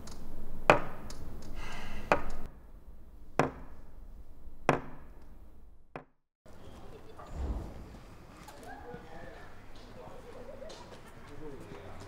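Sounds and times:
sharp knocks: 3.4 - 3.8, 4.6 - 5.2.

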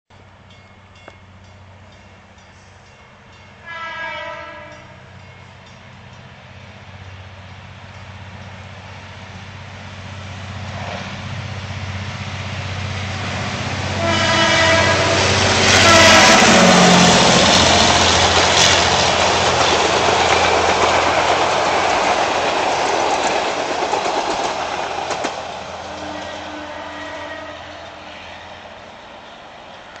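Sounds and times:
locomotive horn: 3.6 - 5.2, 13.8 - 17.8, 25.9 - 28.4
train wheels clacking on rails: 12.0 - 26.4.

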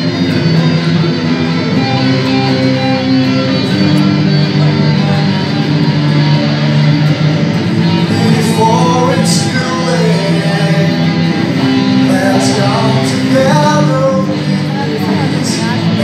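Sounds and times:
electric guitars playing chords: 0.0 - 16.0
person singing: 7.7 - 16.0.

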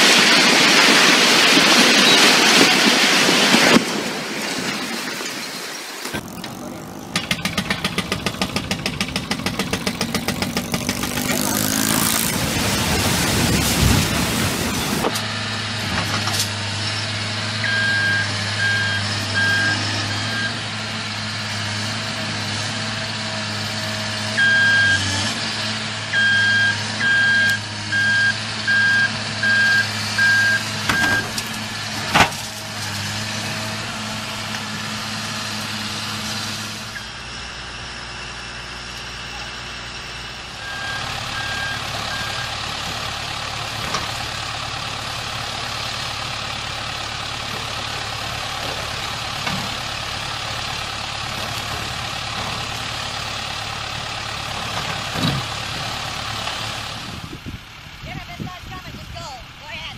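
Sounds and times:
excavator diesel engine: 0.0 - 59.9
backup alarm beeping: 26.2 - 31.4, 40.6 - 42.5.

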